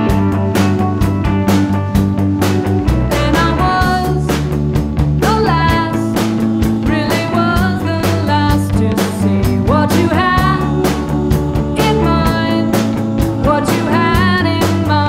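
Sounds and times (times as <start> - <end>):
electric keyboard: 0.0 - 15.0
rock band playing: 0.0 - 15.0
woman singing lead: 3.0 - 4.6, 5.2 - 15.0.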